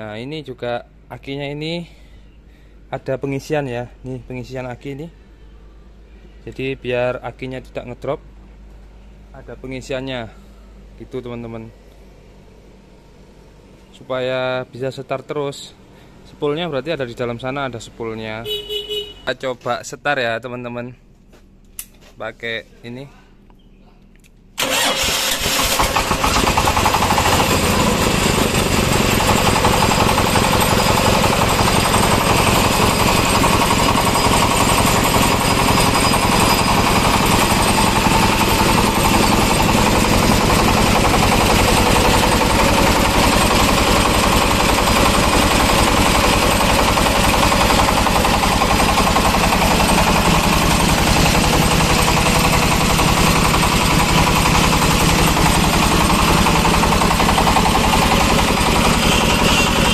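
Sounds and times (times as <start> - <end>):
diesel engine knocking steadily: 25.8 - 59.9.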